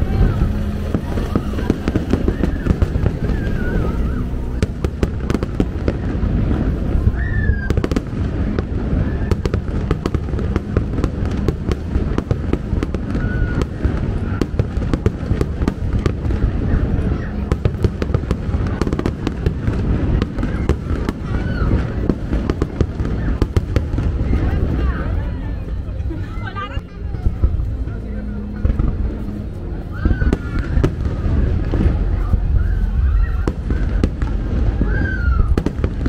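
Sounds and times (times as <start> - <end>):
fireworks bursting and crackling: 0.0 - 25.7, 26.4 - 36.0.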